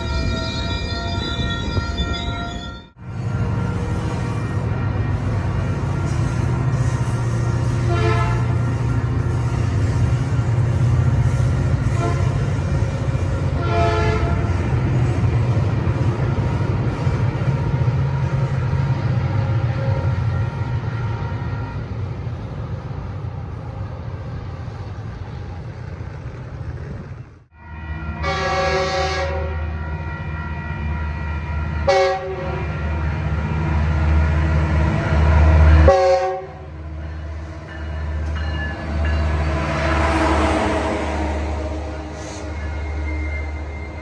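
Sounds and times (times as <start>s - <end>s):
locomotive horn: 0.0s - 9.8s, 10.4s - 14.8s, 19.8s - 22.2s, 27.5s - 34.6s, 35.2s - 37.0s
train wheel noise: 0.0s - 27.5s, 31.6s - 44.0s
locomotive engine drone: 0.0s - 44.0s
train coaches rumbling past: 0.0s - 44.0s.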